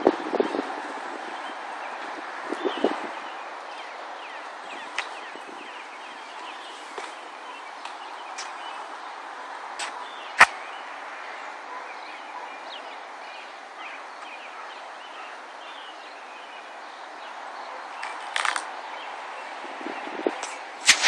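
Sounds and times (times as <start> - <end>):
background hiss: 20.3 - 21.0.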